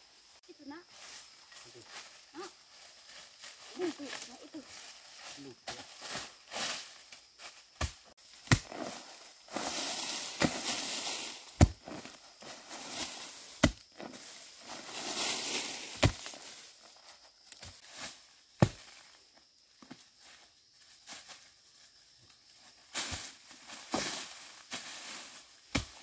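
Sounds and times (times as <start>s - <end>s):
dry leaves rustling: 0.7s - 19.2s, 20.7s - 26.0s
tool chopping into ground: 7.8s - 12.2s, 12.9s - 14.2s, 15.9s - 16.4s, 18.6s - 19.0s, 25.7s - 26.0s.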